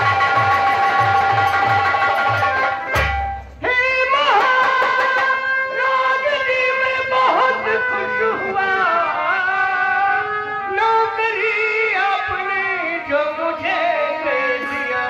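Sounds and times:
drum beats: 0.0s - 5.9s
man singing: 3.6s - 15.0s.

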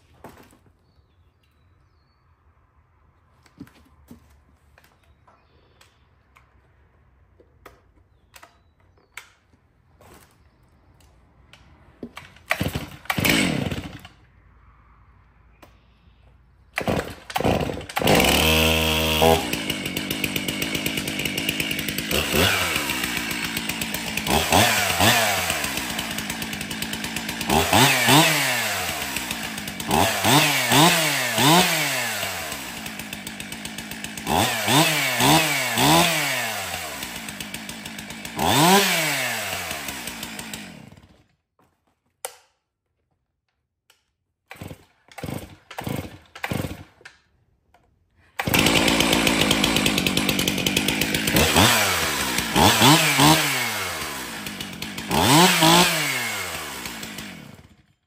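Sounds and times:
chainsaw running and revving: 12.4s - 14.2s, 16.8s - 41.3s, 44.5s - 47.0s, 48.4s - 58.0s.

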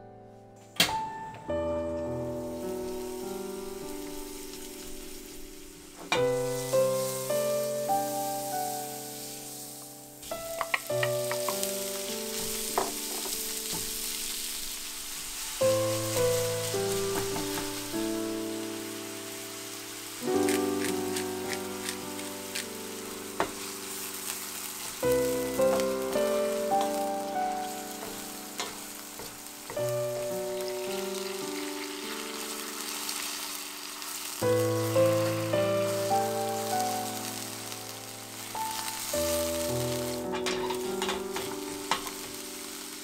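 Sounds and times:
soft background music: 0.0s - 43.0s
meat sizzling in frying pan: 2.3s - 43.0s.

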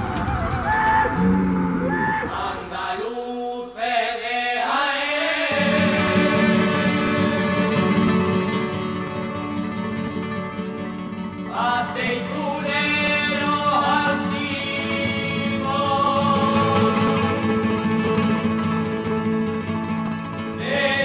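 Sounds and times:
flamenco guitar playing: 0.0s - 2.6s, 5.5s - 21.0s
person singing ornamented notes: 5.4s - 8.4s.

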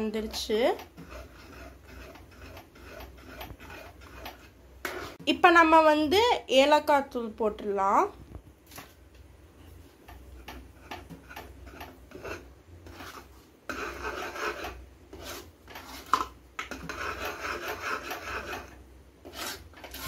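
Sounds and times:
metal spoon scraping pan: 0.0s - 5.2s, 10.1s - 20.0s.

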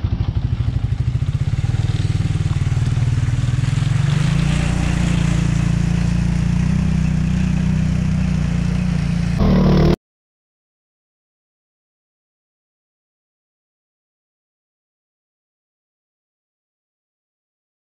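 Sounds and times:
atv engine running: 0.0s - 10.0s
short engine sound: 0.0s - 10.0s
water splashing around wheels: 0.0s - 10.0s.

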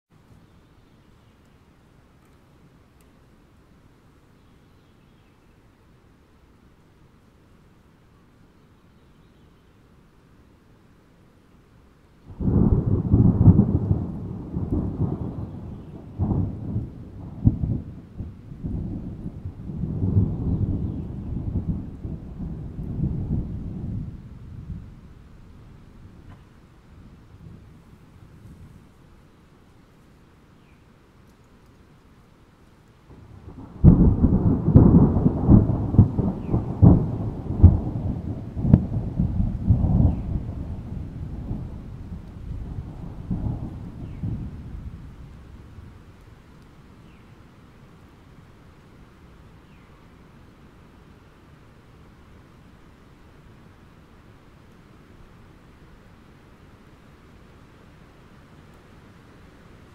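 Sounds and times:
thunder rumbling: 12.3s - 29.0s, 33.1s - 46.5s
sharp thunder crack: 12.4s - 24.8s, 33.4s - 45.6s.

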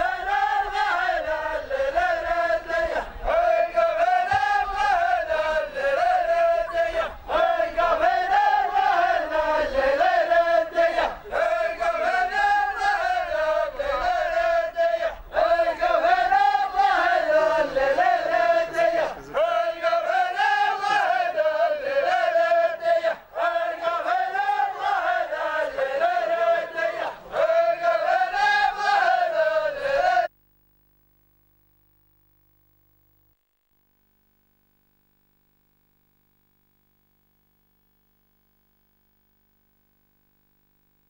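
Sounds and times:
men chanting in unison: 0.0s - 30.3s.

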